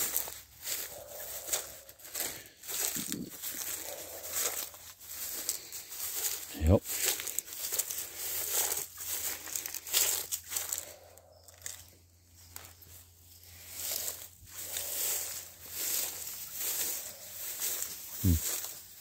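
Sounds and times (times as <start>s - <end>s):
footsteps crunching through dry leaves: 0.0s - 19.0s.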